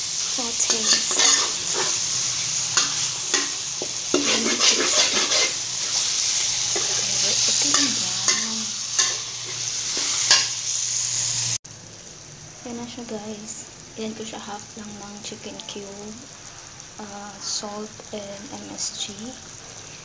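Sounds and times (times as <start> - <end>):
chicken sizzling in a wok: 0.0 - 20.0
metal spatula scraping wok: 0.2 - 11.5.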